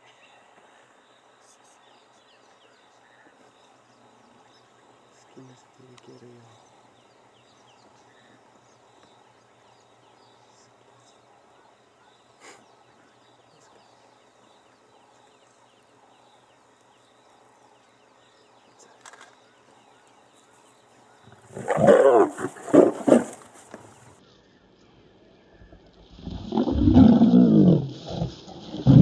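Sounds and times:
faint bush background: 0.0 - 29.0
lioness snarling and growling: 21.4 - 23.5, 26.2 - 29.0.

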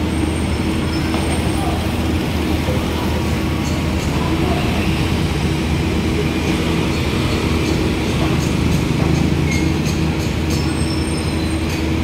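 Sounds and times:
motor vehicle engines droning: 0.0 - 12.0.

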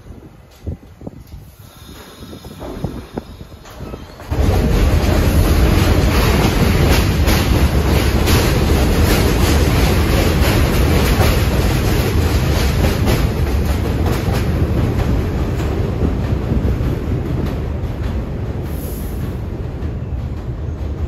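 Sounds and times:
train rumbling on elevated track: 0.0 - 21.0
wheels clacking over rail joints: 3.7 - 18.4.

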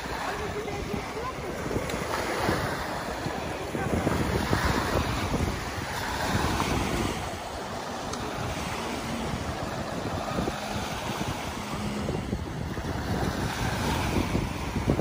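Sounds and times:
small waves breaking on sand: 0.0 - 15.0
wind buffeting microphone: 0.0 - 15.0.

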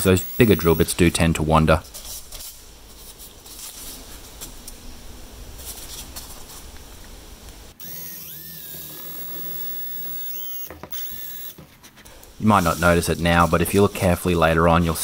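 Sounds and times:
drill motor whine: 0.0 - 0.9, 7.8 - 11.6
drill scraping into wood: 0.0 - 0.9, 7.8 - 11.6.

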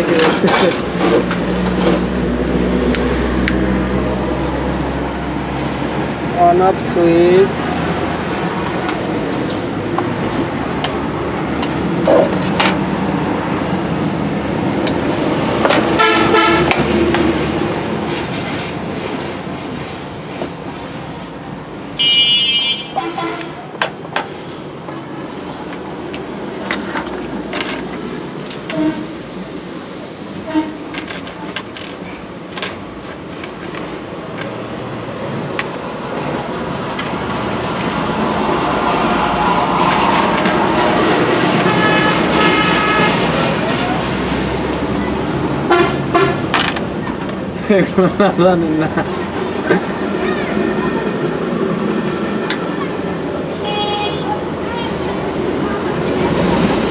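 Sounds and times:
street traffic: 0.0 - 56.9
vehicle horn honking: 16.0 - 16.8, 22.0 - 23.5, 41.6 - 43.2, 45.7 - 46.4, 53.6 - 54.4.

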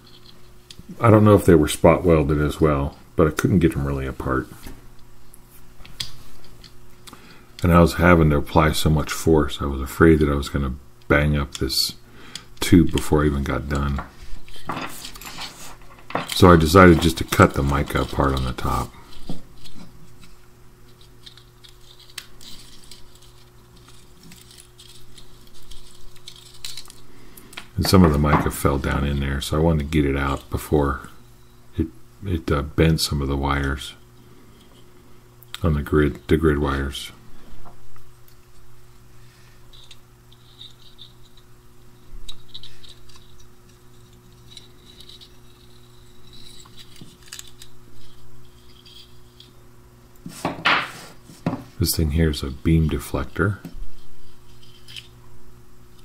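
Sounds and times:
steady low hum: 0.0 - 56.0
pliers scratching and clicking on metal: 20.9 - 27.0, 42.3 - 49.6.

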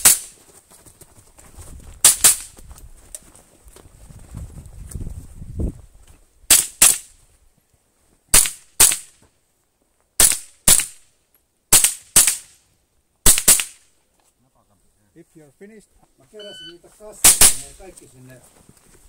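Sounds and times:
rifle shots cracking: 6.5 - 7.1, 8.3 - 9.2, 10.2 - 11.1, 11.7 - 12.6, 13.2 - 13.8, 17.2 - 17.8.

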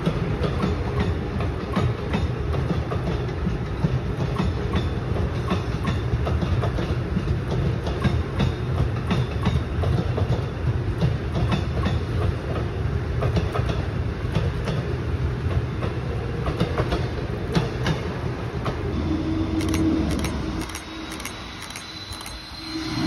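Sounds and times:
train cars rumbling: 0.0 - 23.0
wheels clicking over rail joints: 19.6 - 22.4.

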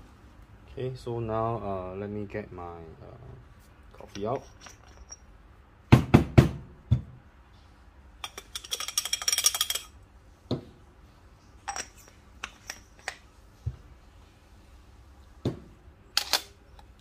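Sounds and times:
metal and glass clinks: 4.1 - 5.3, 8.2 - 10.0, 11.6 - 13.1.

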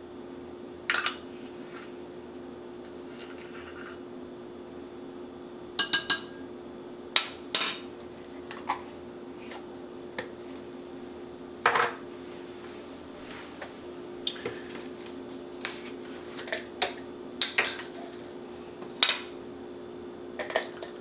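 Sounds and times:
utensils clattering: 16.4 - 18.4
utensils clinking: 16.4 - 18.4.

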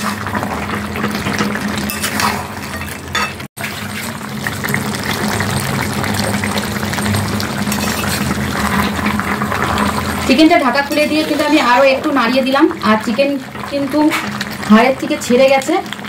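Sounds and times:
metal spatula scraping pan: 0.0 - 4.1, 7.7 - 12.1
curry bubbling and sizzling: 0.0 - 16.0.

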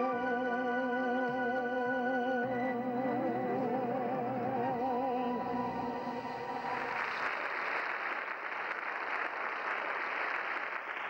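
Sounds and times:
audience applause: 6.5 - 11.0.

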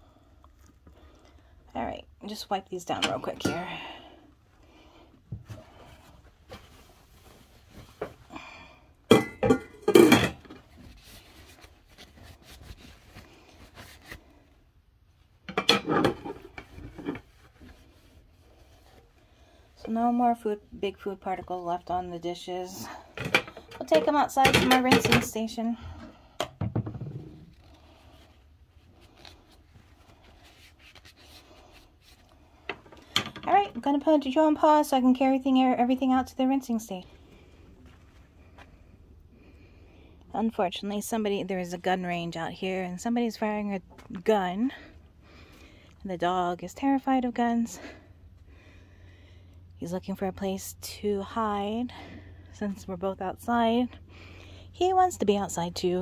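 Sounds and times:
low steady hum: 0.0 - 56.0
plates and utensils clinking: 9.1 - 10.5
plates clattering together: 9.1 - 10.5.

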